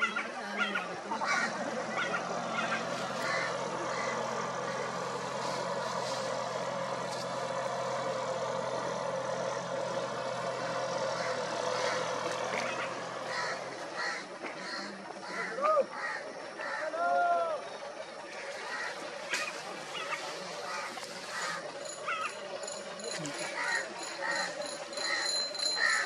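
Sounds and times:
tractor diesel engine running: 0.0s - 26.0s.

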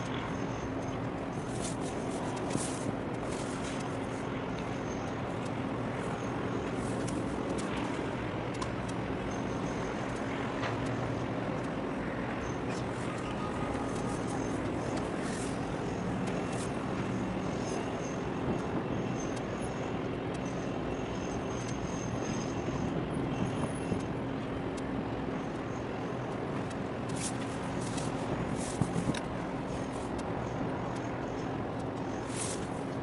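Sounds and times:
engine drone: 0.0s - 33.0s.

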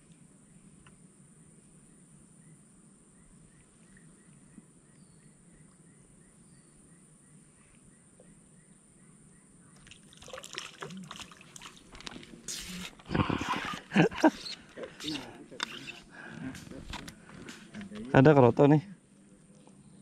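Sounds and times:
faint regular chirping: 11.6s - 20.0s.

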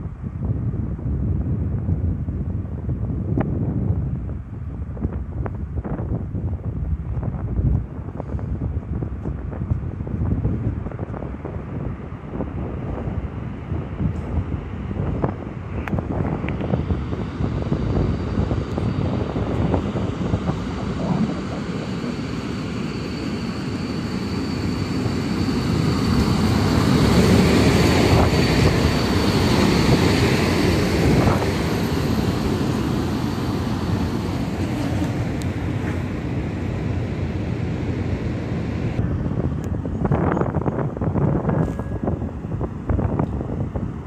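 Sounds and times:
faint high whine: 15.1s - 43.2s
train wheels on rails: 17.9s - 38.6s.

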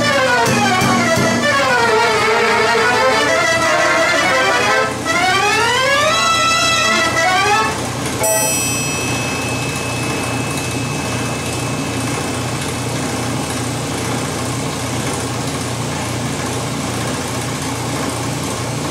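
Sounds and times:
mechanical orchestrion note: 0.0s - 13.6s.

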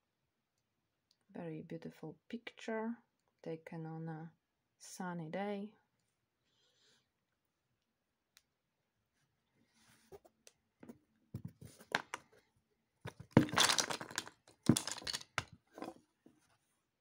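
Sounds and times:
puzzle pieces clattering: 13.1s - 15.9s
puzzle pieces clicking and rustling: 13.1s - 16.0s.

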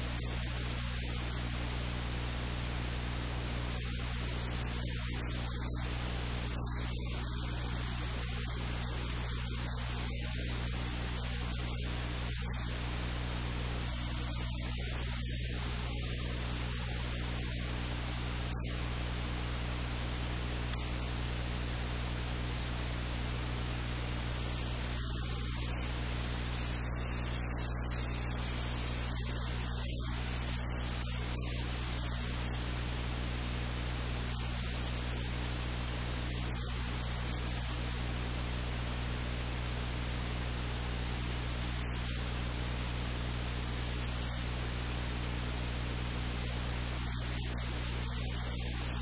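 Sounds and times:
low electrical hum: 0.0s - 49.0s
static hiss: 0.0s - 49.0s.

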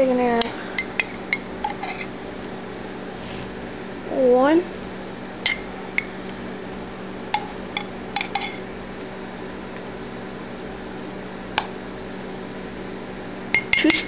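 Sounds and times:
steady low hum: 0.0s - 14.0s
spoon clinking glass jar: 7.4s - 8.6s.

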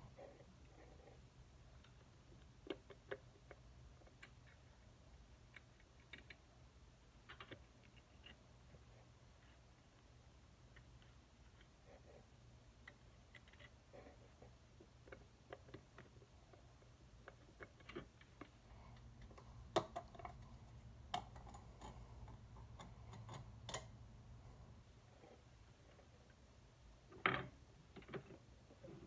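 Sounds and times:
faint metallic clicks and taps: 12.8s - 24.1s.

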